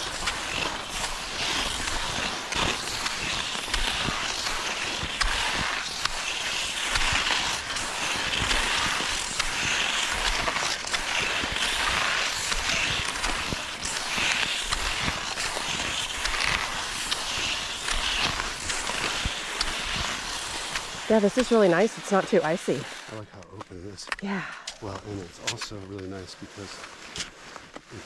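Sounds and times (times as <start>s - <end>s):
skis swishing over snow: 0.0s - 23.4s, 24.8s - 28.0s.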